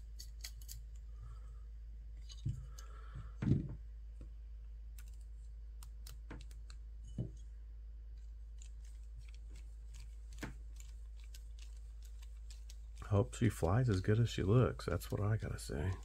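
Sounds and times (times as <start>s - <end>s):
screws and hand driver clicking: 0.1s - 1.0s.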